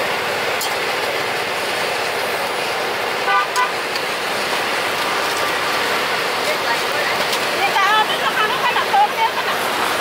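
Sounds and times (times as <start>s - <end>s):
street noise hiss: 0.0s - 10.0s
vehicle horn beeps: 3.2s - 3.8s.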